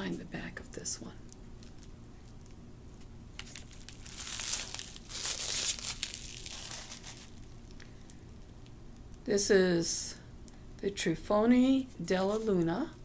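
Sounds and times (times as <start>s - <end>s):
paper packaging rustling: 3.4s - 7.6s.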